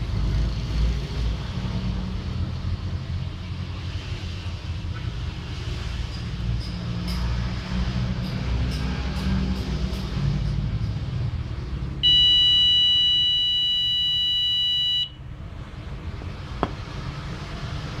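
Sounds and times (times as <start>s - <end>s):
high-pitched buzzer beep: 12.0s - 15.2s.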